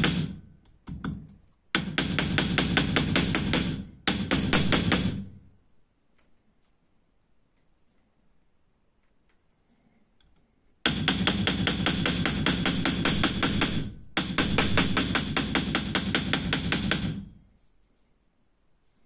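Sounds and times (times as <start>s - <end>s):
hammer tapping on metal: 0.0s - 5.4s, 10.9s - 17.4s.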